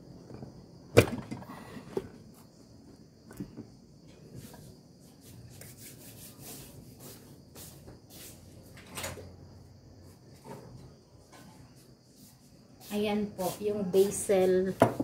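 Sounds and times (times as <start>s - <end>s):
rustling scrapes: 4.4s - 8.6s.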